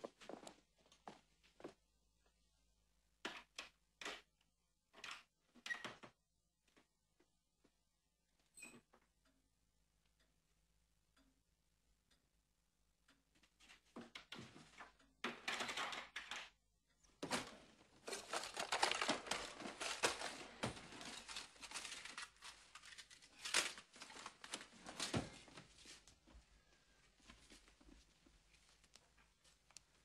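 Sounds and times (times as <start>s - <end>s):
crinkling and rustling: 17.1s - 30.0s.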